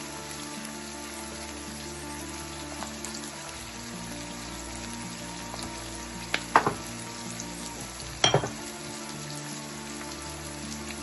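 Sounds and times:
onion sizzling in oil: 0:00.0 - 0:11.0.

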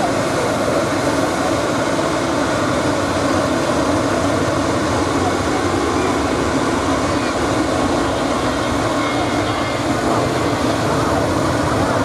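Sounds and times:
jet engines rushing: 0:00.0 - 0:12.0.

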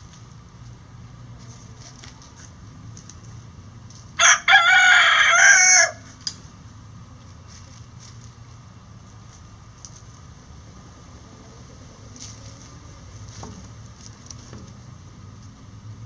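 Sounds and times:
rooster crowing: 0:04.2 - 0:06.1.

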